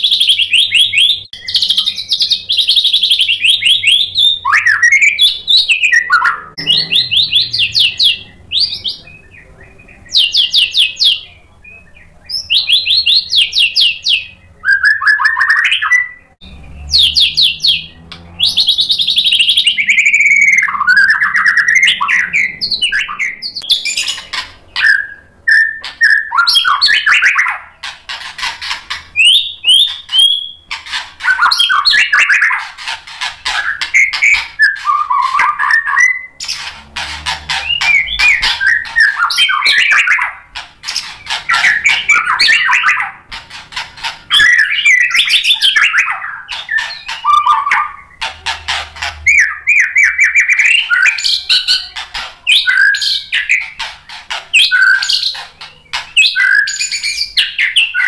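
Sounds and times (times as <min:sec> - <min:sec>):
bird singing: 0:00.0 - 0:58.0.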